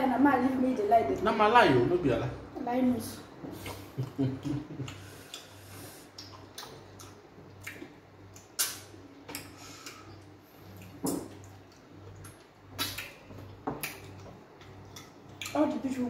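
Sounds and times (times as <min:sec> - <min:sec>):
wet mouth clicks and smacks: 0:06.1 - 0:10.0, 0:10.8 - 0:14.2.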